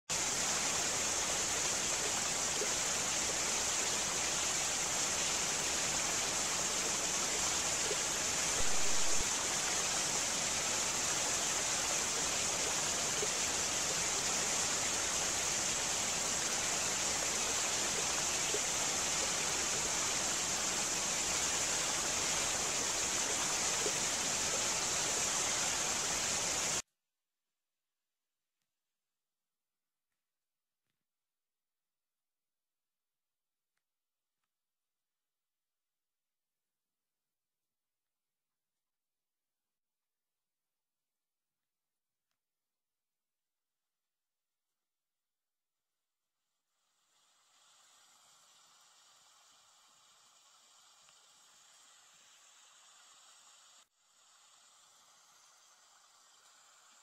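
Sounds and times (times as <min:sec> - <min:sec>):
waterfall rushing: 0:00.2 - 0:26.8.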